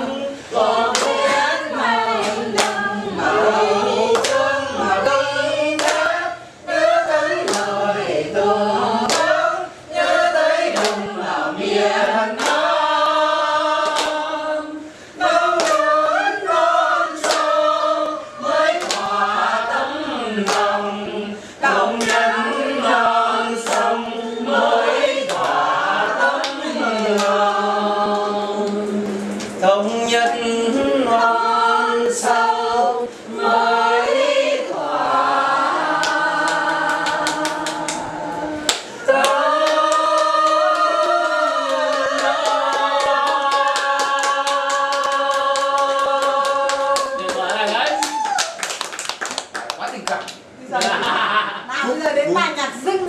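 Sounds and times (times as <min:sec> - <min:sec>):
group singing unaccompanied: 0:00.0 - 0:47.9
hands clapping on the beat: 0:00.9 - 0:02.9, 0:04.1 - 0:05.0, 0:05.8 - 0:06.2, 0:07.4 - 0:07.8, 0:09.1 - 0:09.4, 0:10.7 - 0:11.2, 0:12.3 - 0:13.2, 0:13.8 - 0:14.3, 0:15.5 - 0:16.0, 0:17.2 - 0:17.6, 0:18.7 - 0:19.2, 0:20.4 - 0:20.7, 0:21.9 - 0:22.3, 0:23.6 - 0:24.0, 0:25.2 - 0:25.6, 0:26.3 - 0:27.4, 0:36.0 - 0:38.1, 0:38.7 - 0:51.1.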